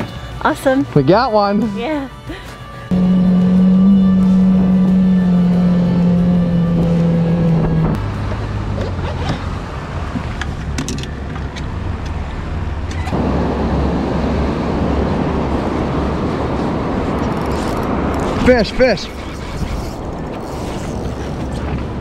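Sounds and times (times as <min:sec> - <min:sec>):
boat motor running: 0:02.9 - 0:09.0, 0:13.1 - 0:22.0.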